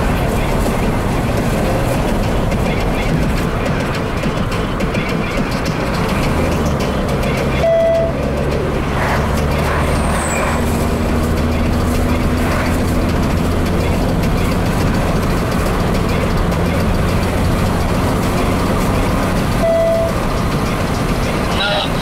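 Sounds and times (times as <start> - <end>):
car engine running: 0.0 - 22.0
tyre and road noise: 0.0 - 22.0
short beep: 7.6 - 8.2, 19.6 - 20.2.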